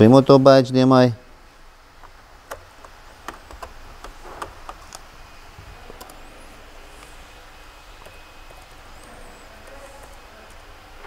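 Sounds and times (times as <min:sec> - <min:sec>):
hands tapping laptop keys: 0:02.0 - 0:05.1.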